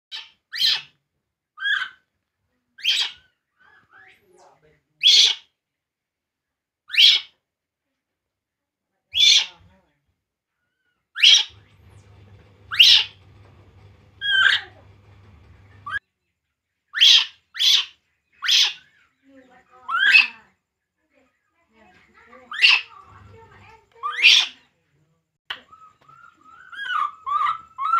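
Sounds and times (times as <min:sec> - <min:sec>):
infant monkey crying: 0:25.7 - 0:27.9.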